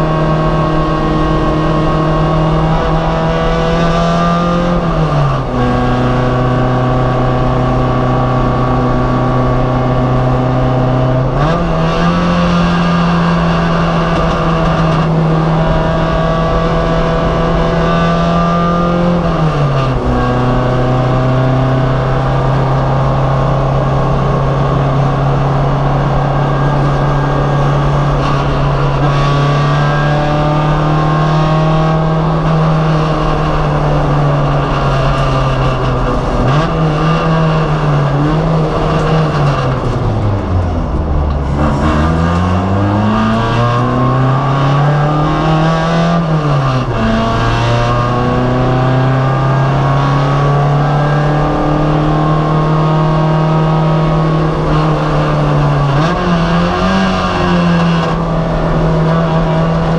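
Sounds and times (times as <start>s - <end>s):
race car engine running hard: 0.0s - 59.9s.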